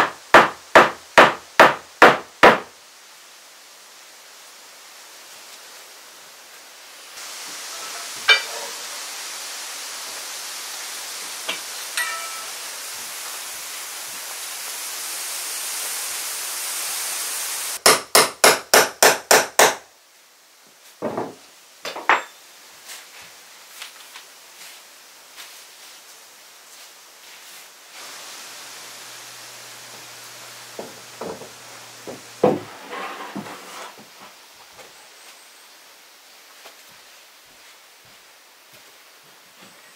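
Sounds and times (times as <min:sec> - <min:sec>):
hammer blows on wooden floor: 0:29.8 - 0:34.3.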